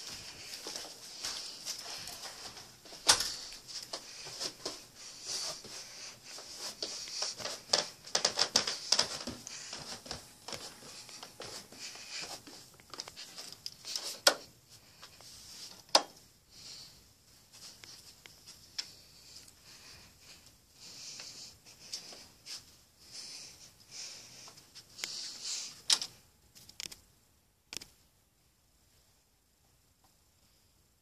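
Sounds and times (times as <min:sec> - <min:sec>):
rustling handling noise: 0:00.0 - 0:16.2.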